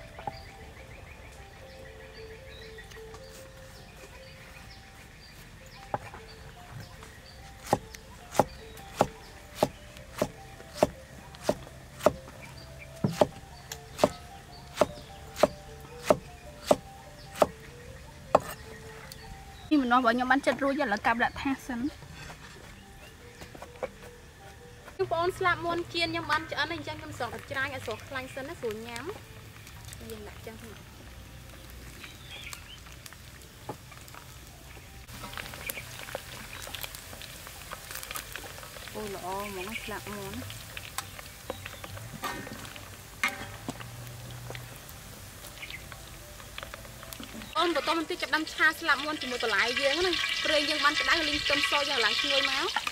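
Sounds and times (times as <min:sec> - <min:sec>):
chicken wings sizzling in oil: 0:06.9 - 0:18.9, 0:25.1 - 0:52.9
cleaver chopping on wooden block: 0:07.6 - 0:12.3, 0:13.0 - 0:13.4, 0:14.0 - 0:17.6, 0:18.3 - 0:18.6.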